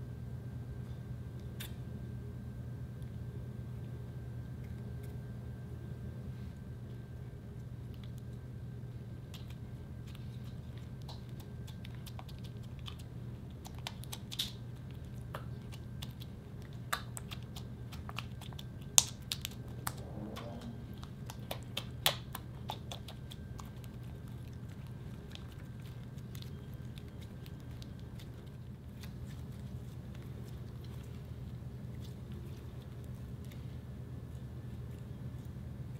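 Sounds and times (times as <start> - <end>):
steady low hum: 0.0 - 35.9
slime squelching with wet clicks: 9.2 - 33.7.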